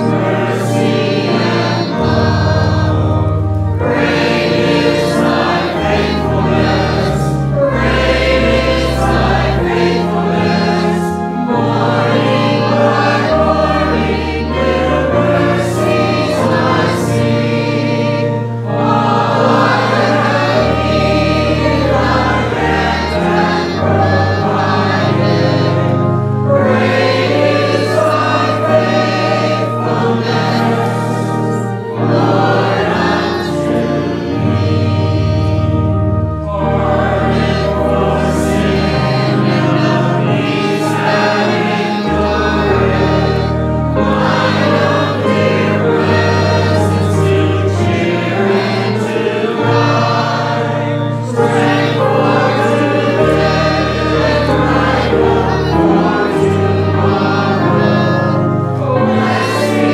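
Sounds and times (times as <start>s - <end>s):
choir singing: 0.0s - 59.9s
instrumental accompaniment with bass notes: 0.0s - 59.9s.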